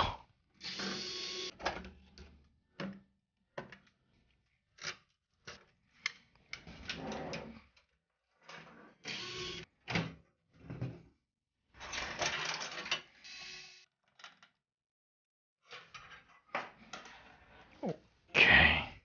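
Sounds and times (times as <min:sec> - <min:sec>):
plastic and metal parts clattering: 0:11.9 - 0:13.1.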